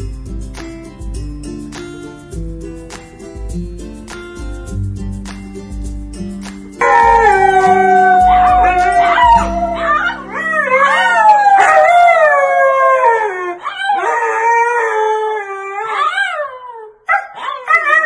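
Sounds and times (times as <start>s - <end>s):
dogs howling: 6.8s - 18.0s.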